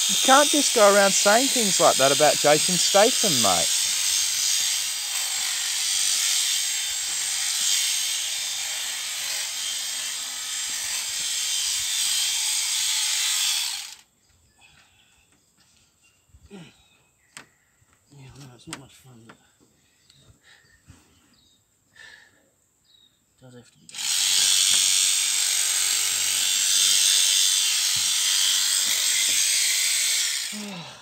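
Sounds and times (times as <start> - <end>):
electric shears running: 0.0 - 14.0, 23.9 - 30.7.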